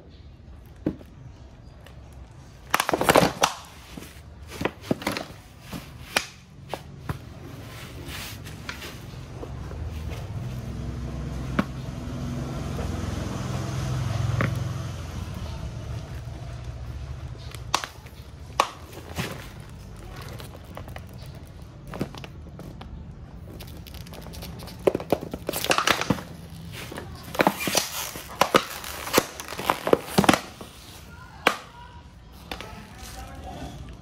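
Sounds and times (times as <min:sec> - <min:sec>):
plastic jar cracking: 0:02.1 - 0:06.4, 0:15.9 - 0:31.8.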